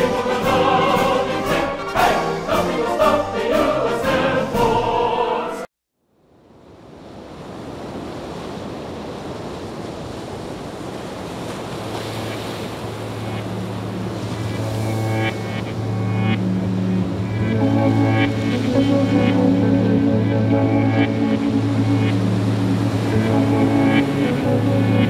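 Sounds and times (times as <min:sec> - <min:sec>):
choral music: 0:00.0 - 0:05.7, 0:13.3 - 0:25.0
low hum: 0:12.8 - 0:25.0.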